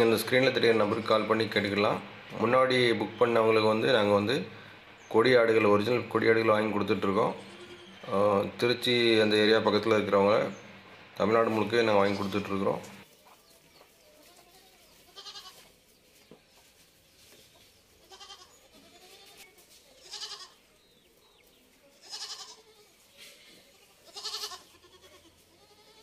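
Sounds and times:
goat kids bleating: 7.0s - 8.3s, 14.1s - 15.8s, 18.0s - 20.8s, 21.9s - 26.0s.

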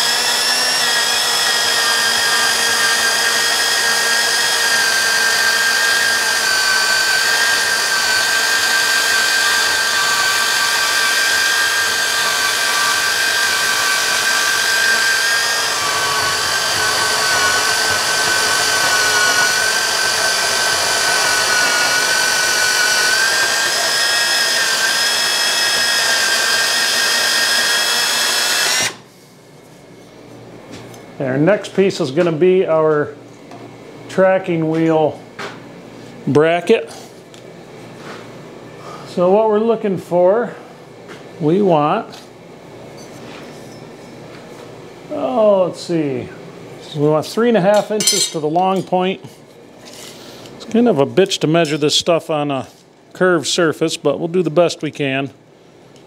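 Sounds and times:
band saw cutting steel: 0.0s - 29.0s, 47.8s - 48.9s.

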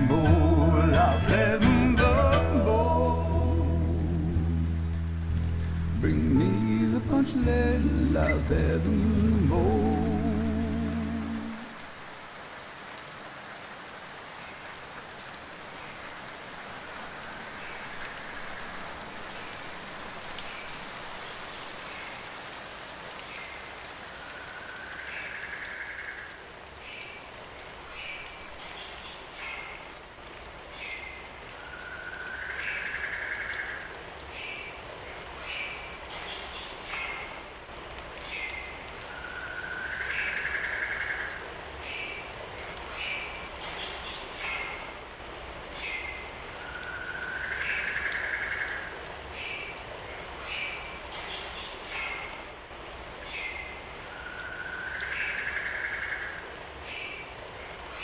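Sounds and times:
tyres hissing on wet road: 1.7s - 26.3s.

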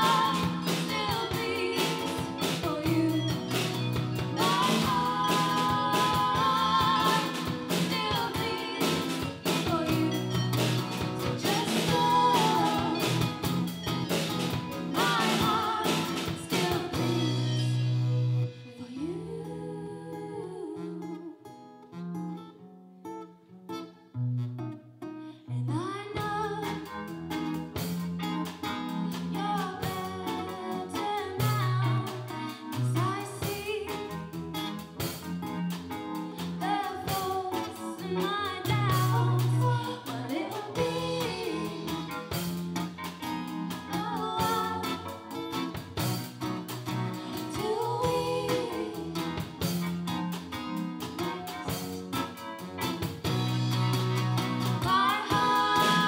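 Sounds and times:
woman singing: 0.0s - 13.8s, 14.7s - 21.5s, 25.4s - 27.2s, 29.0s - 34.4s, 36.2s - 42.6s, 43.5s - 45.8s, 47.2s - 49.9s, 54.6s - 56.0s
live band playing: 0.0s - 19.4s, 26.2s - 56.0s
drums: 0.0s - 20.8s, 26.1s - 56.0s
acoustic guitar: 0.0s - 56.0s.

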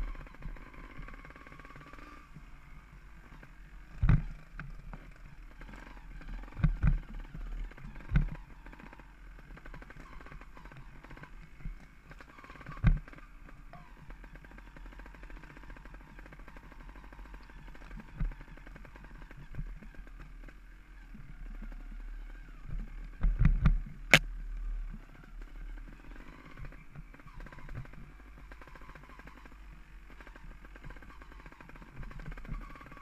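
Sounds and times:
bike rattling: 0.0s - 33.0s.

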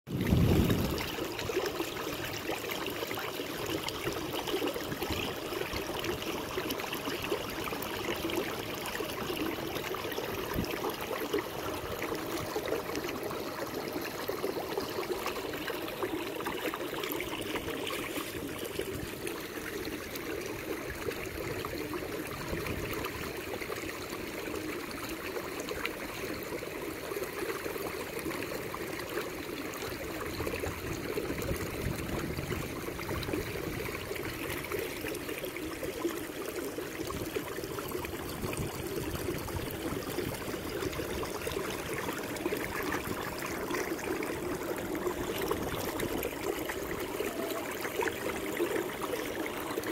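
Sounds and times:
water rippling against kayak hull: 8.1s - 21.7s.

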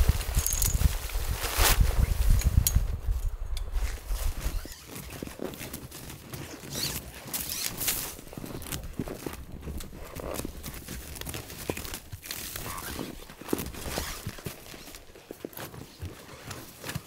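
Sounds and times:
canvas fabric rustling: 0.0s - 3.2s, 12.2s - 17.0s
camp gear rustling and crunching: 0.0s - 17.0s.

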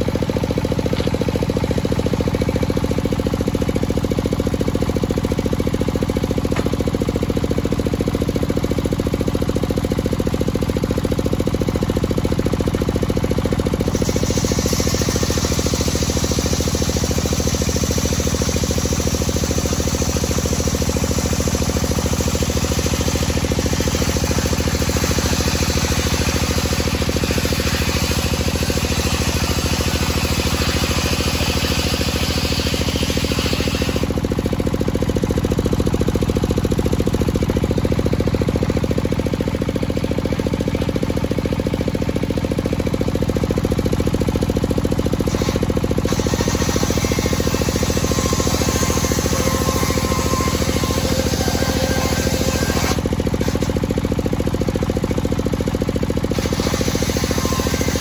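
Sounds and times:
engine droning: 0.0s - 58.0s
circular saw cutting wood: 12.7s - 35.0s, 45.2s - 54.0s, 56.3s - 58.0s
saw blade spinning free: 12.8s - 34.5s, 45.2s - 54.0s, 56.3s - 58.0s.

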